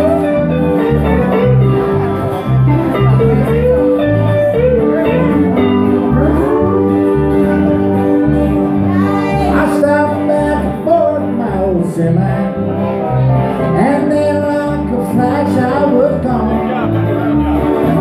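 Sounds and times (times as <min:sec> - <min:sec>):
pulsing bass line: 0:00.0 - 0:18.0
steel guitar: 0:00.0 - 0:18.0
strummed acoustic guitar: 0:00.0 - 0:18.0
man singing: 0:08.8 - 0:17.9.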